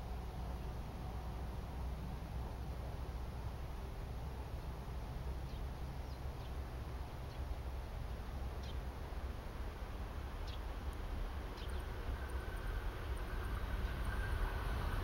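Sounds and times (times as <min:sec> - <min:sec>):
distant train hum: 0:00.0 - 0:15.0
low steady rumble: 0:00.0 - 0:15.0
small birds chirping: 0:03.9 - 0:14.2.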